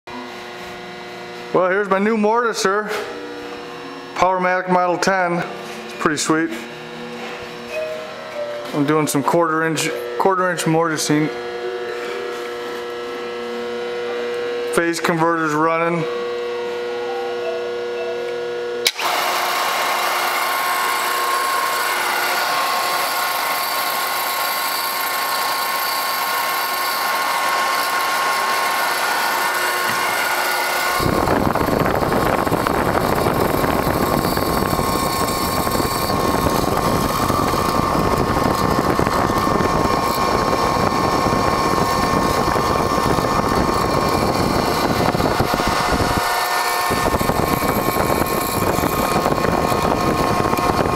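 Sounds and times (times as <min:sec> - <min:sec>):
motor whine: 0:00.1 - 0:50.9
phase converter humming: 0:00.1 - 0:50.9
chisel cutting wood: 0:18.9 - 0:50.8.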